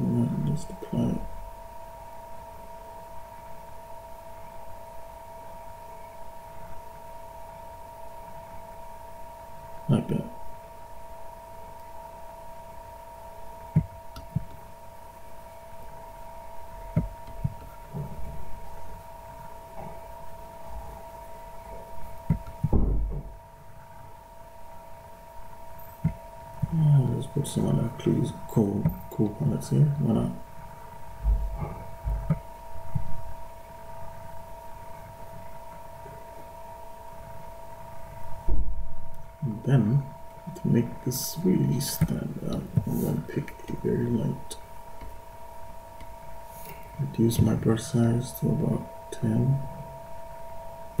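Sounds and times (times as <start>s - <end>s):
two-tone electrical hum: 0.0s - 51.0s
dull low thumps: 22.2s - 23.4s, 31.2s - 33.3s.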